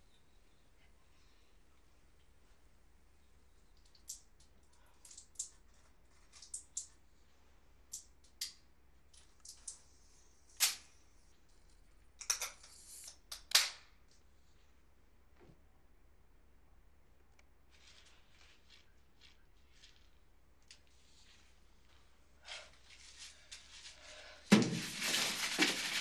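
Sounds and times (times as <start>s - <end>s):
object crackling in hands: 17.7s - 24.0s, 24.6s - 26.0s.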